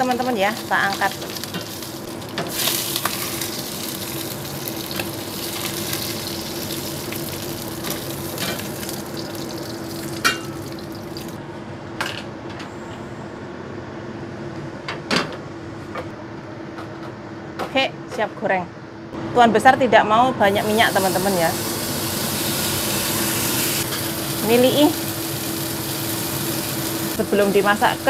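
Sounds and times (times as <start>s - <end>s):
fish sizzling in oil: 0.0s - 11.4s, 20.6s - 28.0s.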